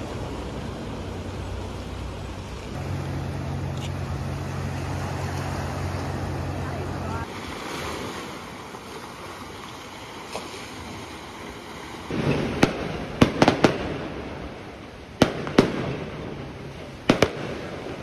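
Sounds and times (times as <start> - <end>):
surf washing among rocks: 0.0 - 18.0
fireworks bangs: 12.1 - 14.6, 15.2 - 18.0.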